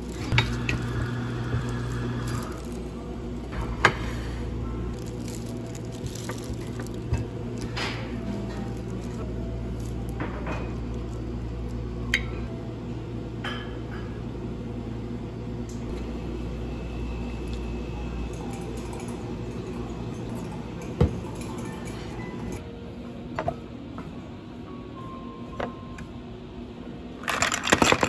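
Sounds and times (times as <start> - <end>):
plastic glove rustling: 0.0 - 3.0, 4.9 - 10.2
steady low hum: 0.0 - 27.3.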